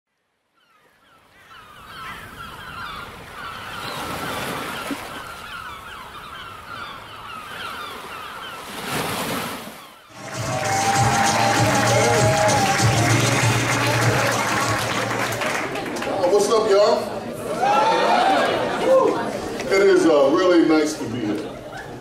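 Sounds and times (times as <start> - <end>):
short bird calls: 0.6 - 8.8.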